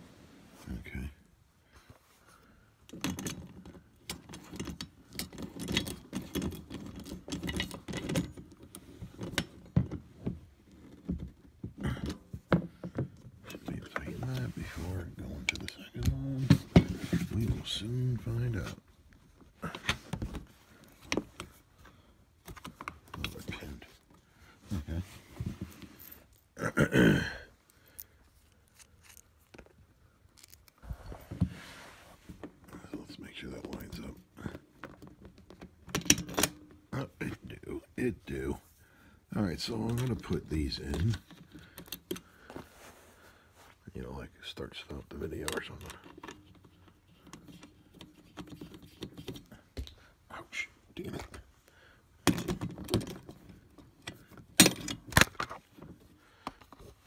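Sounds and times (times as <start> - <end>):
metal tools clinking and knocking: 2.9 - 9.8
person throaty vocal sound: 26.6 - 27.5
faint clicks of bolt and nut: 40.9 - 42.3.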